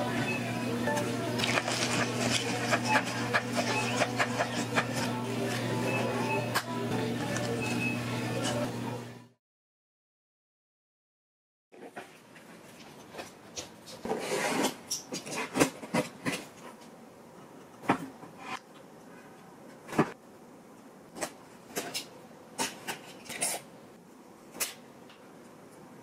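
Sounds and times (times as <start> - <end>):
cardboard rubbing and scraping: 14.0 - 16.2.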